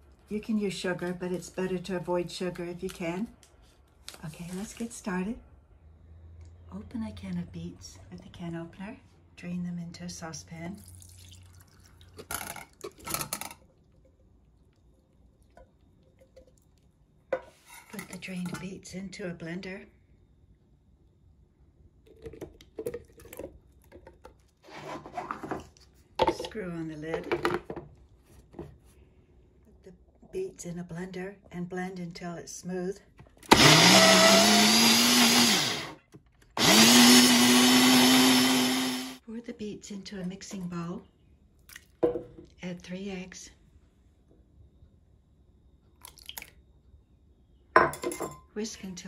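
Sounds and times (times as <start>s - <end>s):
blender motor: 33.5s - 36.0s, 36.6s - 39.2s.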